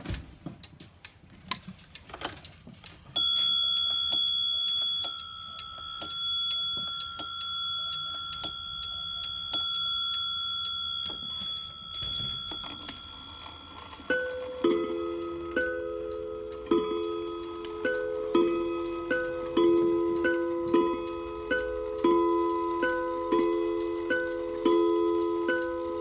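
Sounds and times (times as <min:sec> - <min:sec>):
clock ticking: 0:00.6 - 0:26.0
clock striking on bell: 0:03.2 - 0:18.4
lower-pitched clock chime: 0:03.2 - 0:26.0.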